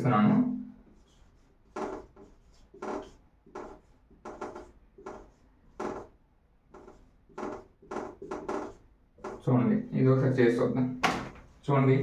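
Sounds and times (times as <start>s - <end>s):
marker squeaking on whiteboard: 0.8s - 9.6s.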